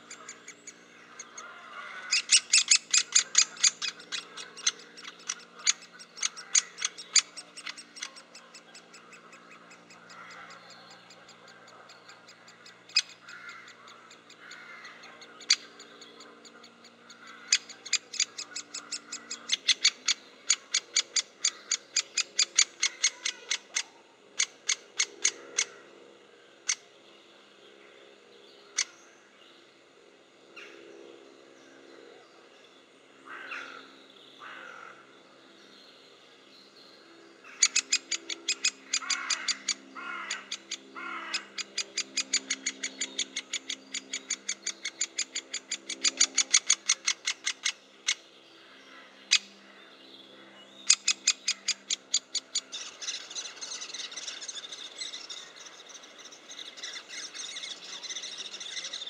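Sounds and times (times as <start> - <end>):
woodpecker kik calls: 0.0 - 25.9, 37.5 - 48.2, 50.8 - 59.0
harsh falling bird calls: 0.0 - 26.9, 37.4 - 59.0
rasping bird chatter: 0.0 - 26.9, 37.4 - 49.7, 50.8 - 59.0.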